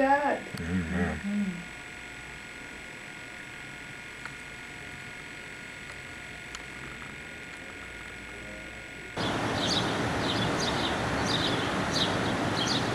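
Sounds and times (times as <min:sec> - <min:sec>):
faint steady whine: 0:00.0 - 0:12.9
outdoor background: 0:09.1 - 0:12.9
small birds chirping: 0:09.2 - 0:12.9.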